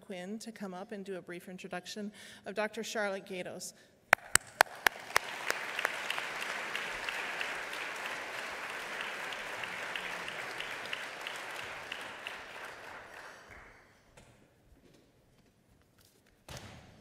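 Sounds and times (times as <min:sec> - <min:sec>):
audience applauding: 0:04.2 - 0:13.9
loud claps close to microphone: 0:04.2 - 0:13.9.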